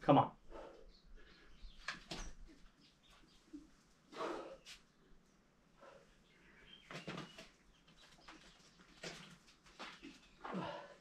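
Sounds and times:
climber breathing bursts: 4.1 - 4.8.

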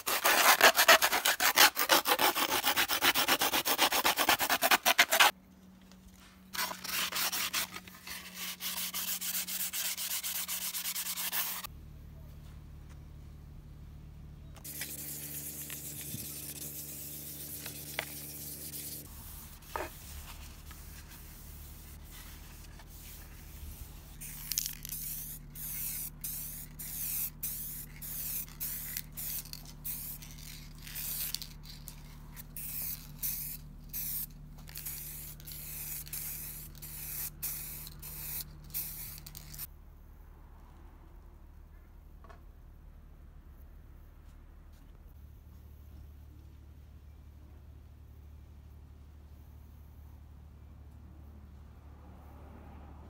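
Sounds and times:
aerosol can spraying: 24.2 - 32.0, 32.6 - 39.7.

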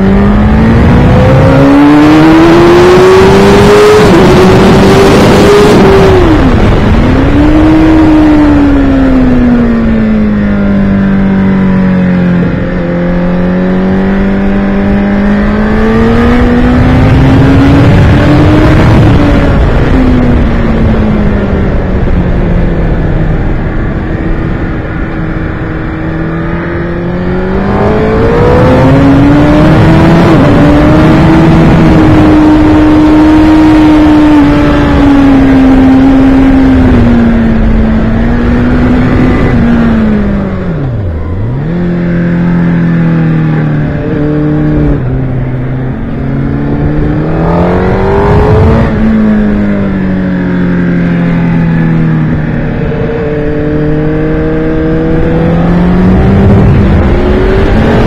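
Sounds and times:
race car engine accelerating: 0.0 - 58.0.

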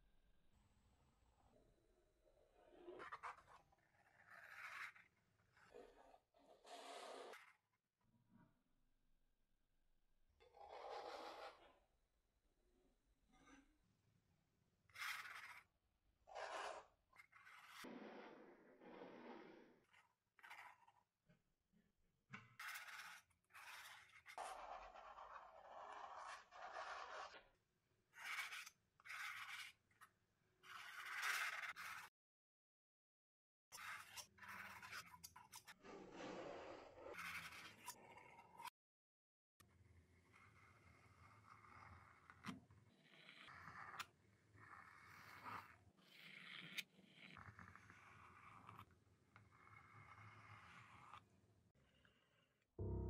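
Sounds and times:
palette knife scraping paint: 2.6 - 7.7, 10.4 - 11.8, 14.9 - 21.4, 22.3 - 32.1, 33.7 - 38.8, 39.7 - 52.7.

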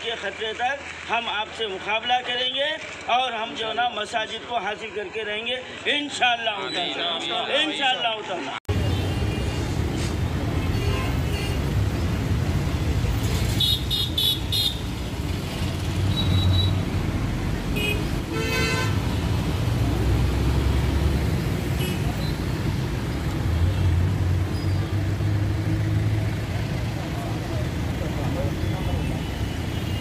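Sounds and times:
road traffic engine rumble: 0.0 - 6.2, 8.7 - 30.0
car horn toots: 17.8 - 19.0.

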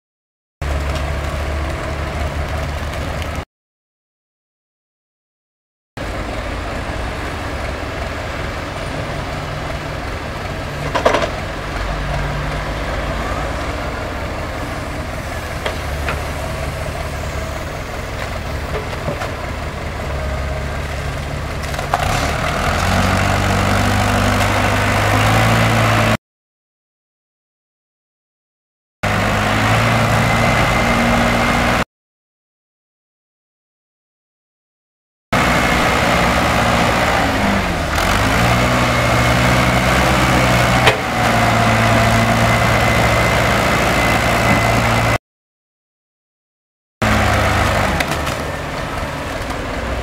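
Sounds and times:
heavy machinery diesel engines: 0.6 - 3.4, 6.0 - 26.2, 29.0 - 31.8, 35.4 - 45.2, 47.0 - 50.0.

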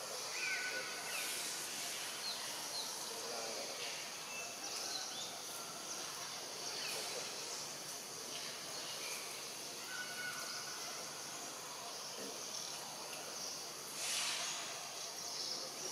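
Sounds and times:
insects hissing: 0.0 - 15.9.

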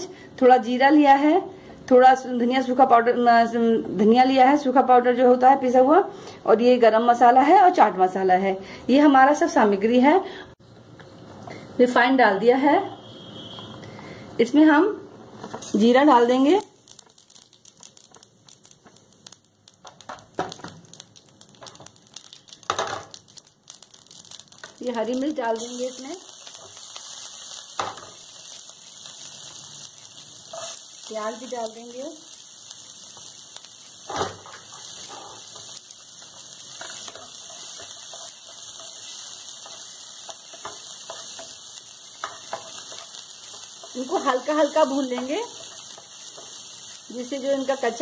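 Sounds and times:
seeds crackling in oil: 15.7 - 48.0
knocks in frying pan: 22.6 - 23.2
spatula scraping pan: 34.1 - 35.8.

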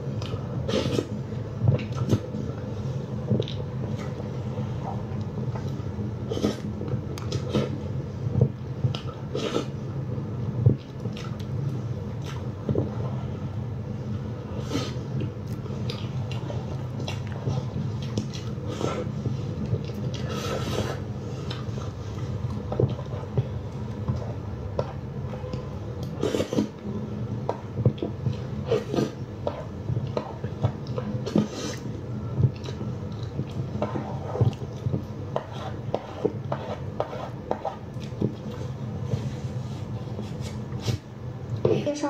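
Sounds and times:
steady low hum: 0.0 - 42.0
chewing: 14.8 - 26.8, 27.8 - 35.5, 37.6 - 39.2.

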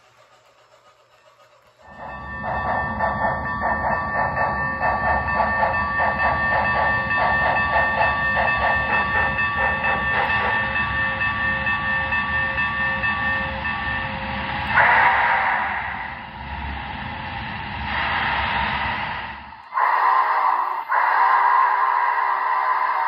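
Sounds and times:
model steam locomotive chuffs: 0.0 - 23.0
steady whistle tone: 1.8 - 16.7, 19.6 - 23.0.

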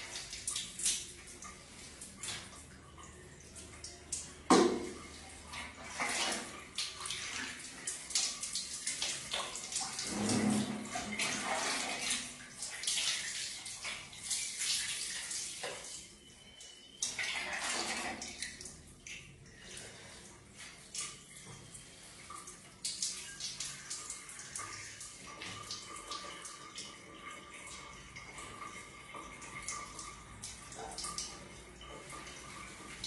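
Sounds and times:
water splashing on tiled floor: 0.0 - 33.0
water scooped from a bucket: 9.8 - 12.3.

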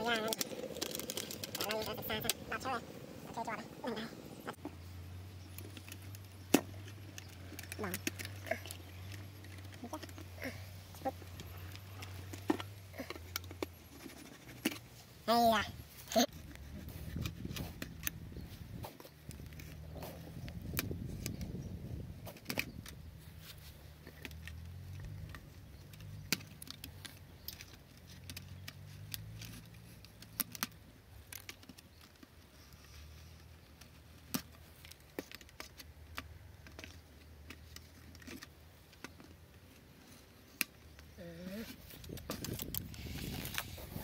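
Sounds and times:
plastic crinkling: 0.0 - 2.8.

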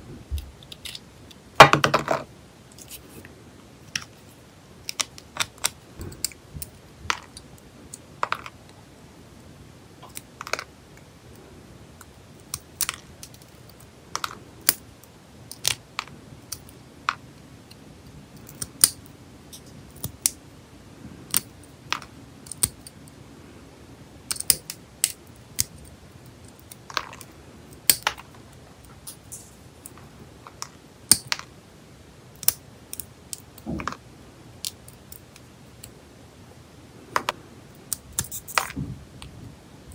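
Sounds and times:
nail nippers clicking and snapping: 22.4 - 23.0, 32.4 - 34.0, 37.8 - 38.7.

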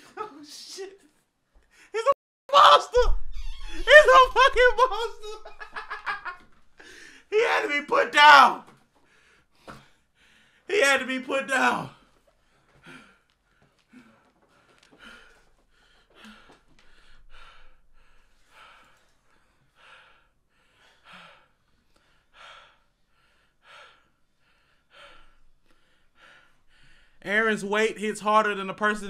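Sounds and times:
man breathing heavily: 6.8 - 7.3, 12.3 - 27.2
man gasping: 6.8 - 7.3.

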